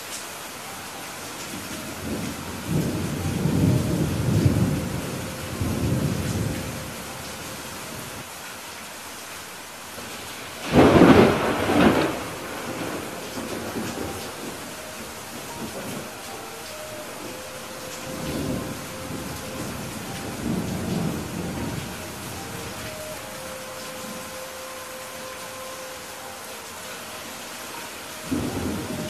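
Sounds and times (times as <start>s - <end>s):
heavy rain: 0.0s - 29.0s
low rolling thunder: 1.8s - 8.2s, 10.1s - 24.4s, 28.3s - 29.0s.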